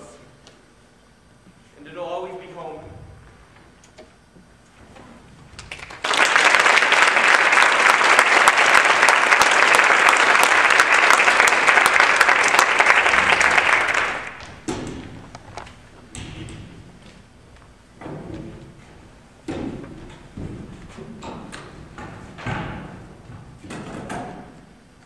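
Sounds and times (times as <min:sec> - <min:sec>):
audience applauding: 0:05.6 - 0:14.7.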